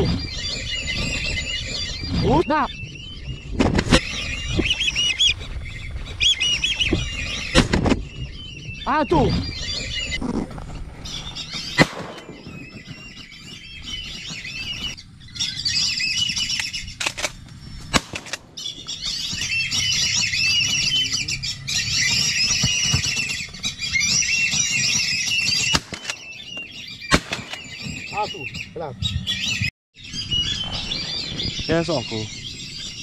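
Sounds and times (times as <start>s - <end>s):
whistling ducks calling: 0.0s - 18.0s, 18.6s - 33.0s
sharp loud crack: 11.8s - 12.4s.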